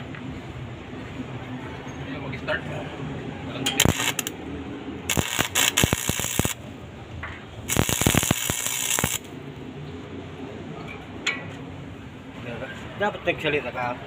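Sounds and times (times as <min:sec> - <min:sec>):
welding arc crackling: 0:03.8 - 0:04.4, 0:05.1 - 0:06.6, 0:07.6 - 0:09.4.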